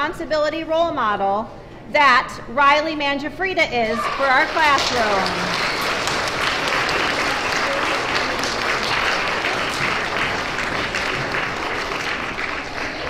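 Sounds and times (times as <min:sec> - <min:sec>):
children applauding: 0:04.0 - 0:13.0.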